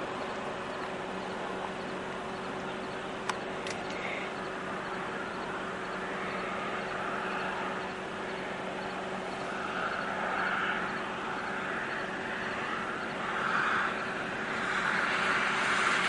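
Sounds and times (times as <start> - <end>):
low hum: 0.0 - 16.0
sharp click: 3.2 - 4.0.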